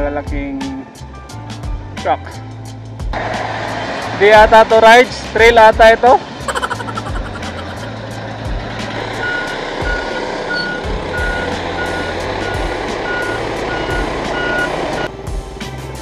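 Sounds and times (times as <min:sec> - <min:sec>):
vehicle engine noise: 0:03.2 - 0:04.2, 0:06.2 - 0:15.0.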